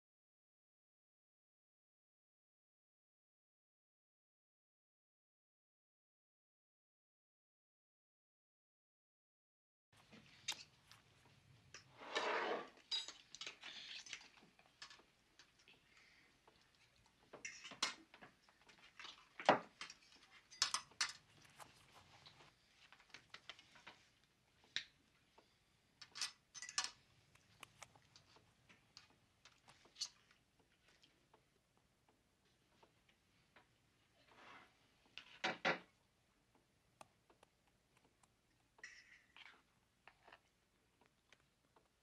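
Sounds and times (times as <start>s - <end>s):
cutlery clinking on plates: 17.4s - 18.0s, 19.8s - 21.2s.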